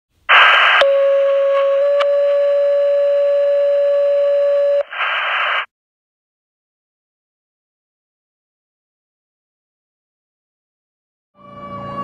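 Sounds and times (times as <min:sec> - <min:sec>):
radio static: 0:00.3 - 0:00.9, 0:04.8 - 0:05.7.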